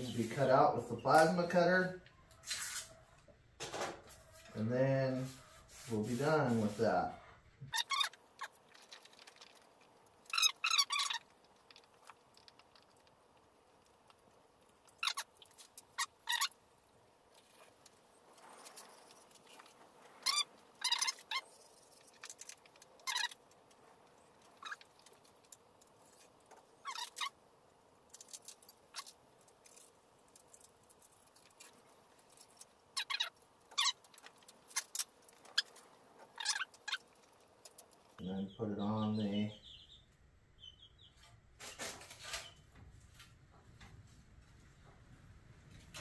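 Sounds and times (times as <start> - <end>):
young chickens peeping: 37.7 - 40.0, 40.6 - 41.3.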